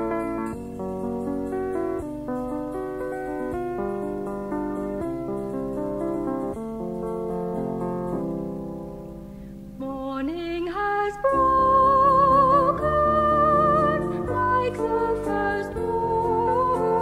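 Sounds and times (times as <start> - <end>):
keyboard holding chords: 0.0 - 10.0, 11.2 - 17.0
person singing with vibrato: 9.8 - 17.0.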